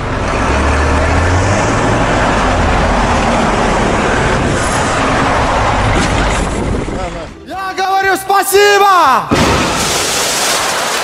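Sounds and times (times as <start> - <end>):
road and wind noise: 0.0 - 7.6.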